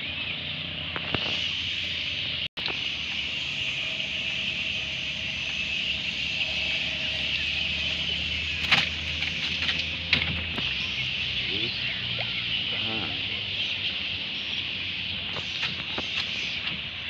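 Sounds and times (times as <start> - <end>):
high-pitched outdoor drone: 0.0 - 17.0
knocks and clicks in boat: 8.6 - 10.7, 15.3 - 17.0.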